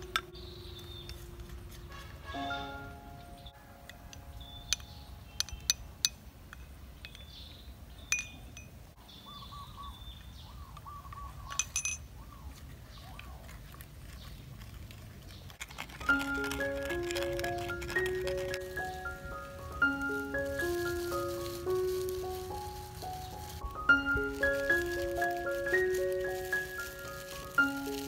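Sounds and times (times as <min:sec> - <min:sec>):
faint bird calls: 0:09.0 - 0:13.5.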